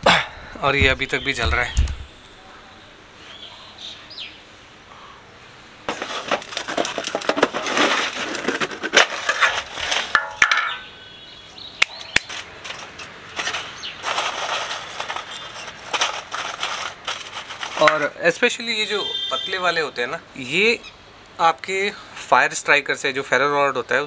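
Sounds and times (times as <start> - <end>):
charcoal lumps clinking: 5.9 - 10.9, 11.8 - 18.4.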